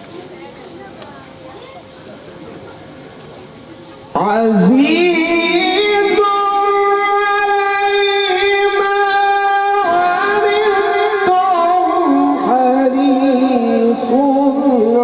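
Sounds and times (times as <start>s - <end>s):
man chanting recitation: 4.1s - 15.0s.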